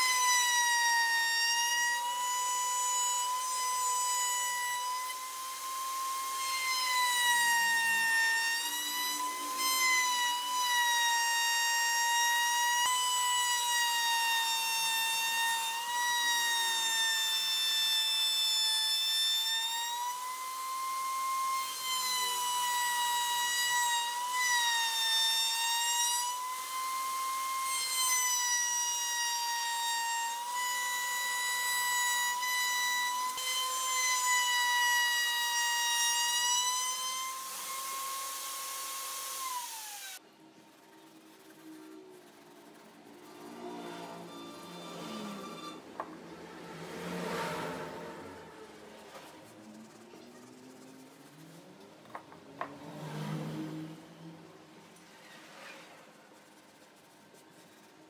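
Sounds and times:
router whining cutting wood: 0.0 - 40.2.

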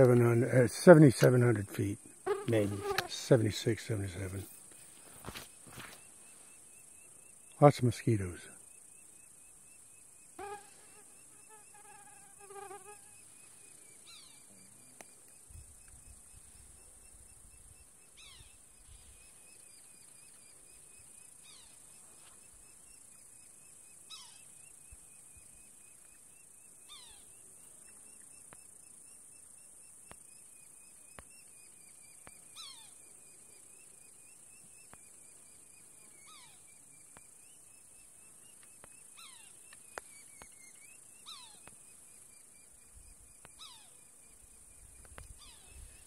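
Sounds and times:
insects humming: 0.0 - 46.0
bird chirps: 16.4 - 20.4, 31.4 - 33.0.

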